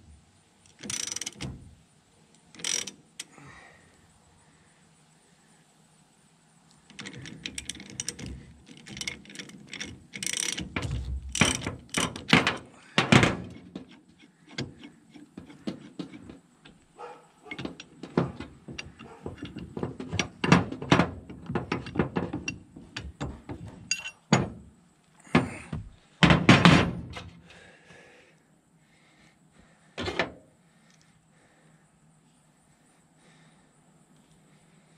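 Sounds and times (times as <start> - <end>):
metal clicks and clanks: 0.7 - 1.7, 2.3 - 3.3, 6.8 - 16.9, 17.5 - 24.6.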